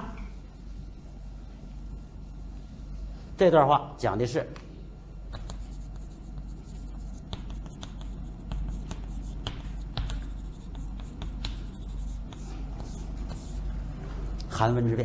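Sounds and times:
chalk tapping and scratching: 5.3s - 14.4s.

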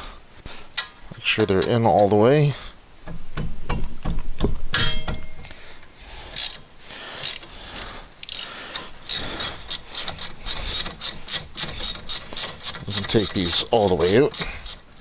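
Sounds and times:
hand ratchet clicking: 6.3s - 6.6s, 7.2s - 15.0s.

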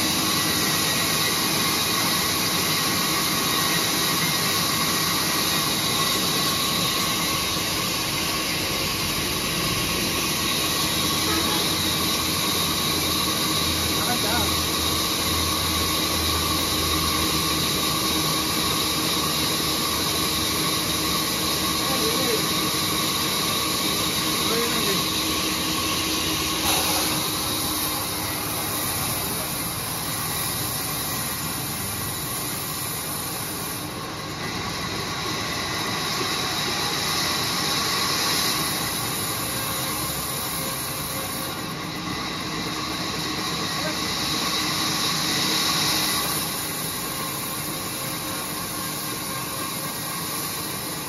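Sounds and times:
band saw humming and whining: 0.0s - 51.0s
band saw blade hissing in wood: 20.3s - 34.0s.

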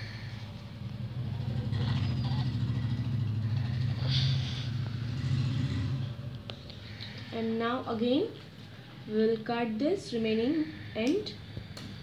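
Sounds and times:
low engine-like rumble: 0.0s - 9.4s.

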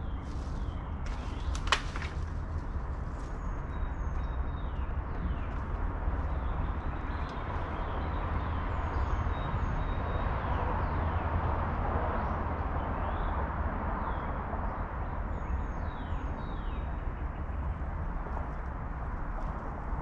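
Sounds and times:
small birds chirping: 0.0s - 11.2s
distant highway traffic: 0.0s - 20.0s.

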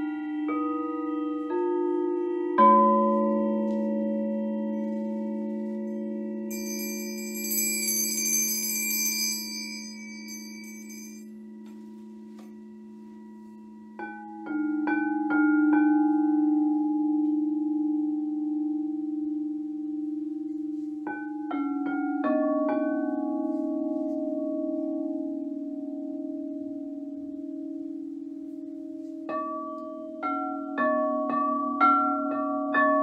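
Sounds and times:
singing bowls ringing: 0.0s - 33.0s
high shimmering chime: 4.7s - 11.6s.

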